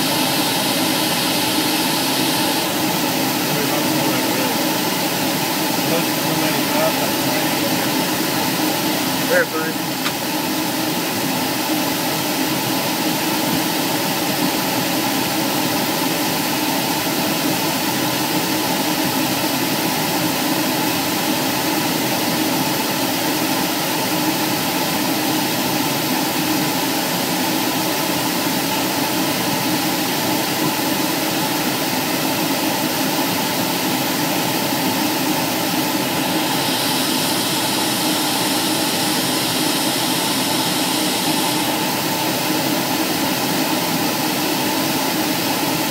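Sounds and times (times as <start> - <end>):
hiss of rushing air: 0.0 - 17.5, 33.0 - 45.8
aircraft cabin engine drone: 0.0 - 45.9.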